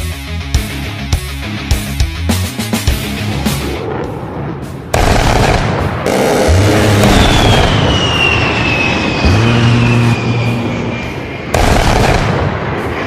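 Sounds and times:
loud music with deep bass: 0:00.0 - 0:03.8, 0:05.0 - 0:07.6
jet engine whine flyby: 0:02.9 - 0:13.0.

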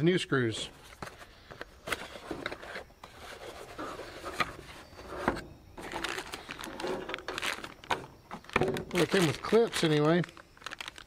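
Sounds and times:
plastic bag rustling: 0:03.4 - 0:11.0.

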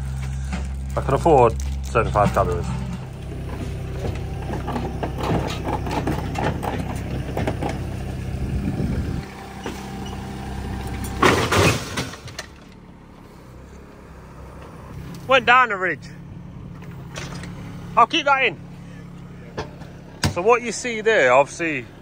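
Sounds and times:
metallic clanks and scrapes: 0:00.0 - 0:08.1, 0:10.9 - 0:12.8, 0:16.8 - 0:17.7
digger engine running: 0:00.0 - 0:22.0
loud metal clunk: 0:02.1 - 0:08.0, 0:10.9 - 0:12.8.

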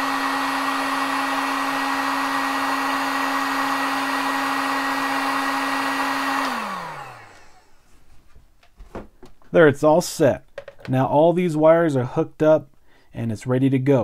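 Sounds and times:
heat gun fan humming: 0:00.0 - 0:07.9.

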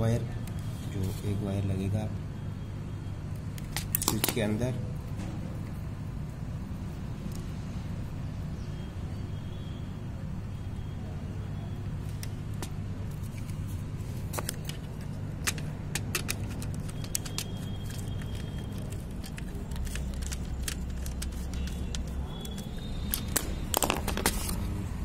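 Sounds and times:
steady low hum: 0:00.0 - 0:25.0
screwdriver clicking on switch terminals: 0:14.4 - 0:24.3.

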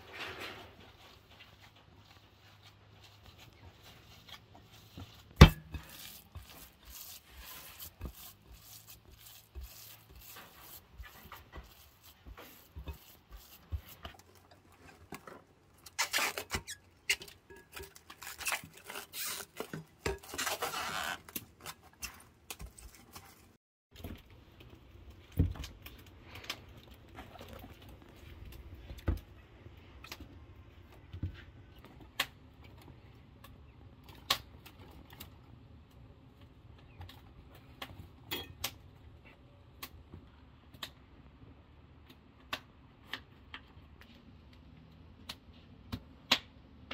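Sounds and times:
hands squelching meat mixture: 0:01.9 - 0:15.2.

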